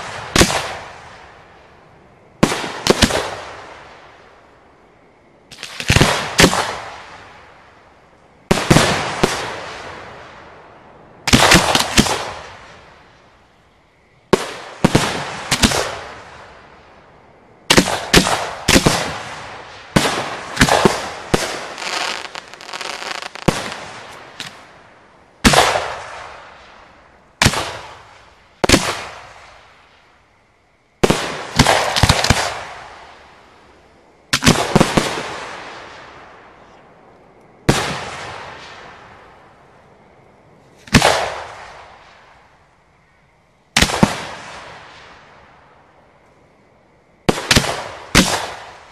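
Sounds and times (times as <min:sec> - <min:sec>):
firework booms: 0:02.4 - 0:04.1, 0:08.5 - 0:10.6, 0:11.2 - 0:13.0, 0:14.3 - 0:16.6, 0:17.7 - 0:29.9, 0:31.0 - 0:33.3, 0:34.3 - 0:36.6, 0:37.6 - 0:39.5, 0:40.8 - 0:42.4
firework crackling: 0:17.7 - 0:24.7.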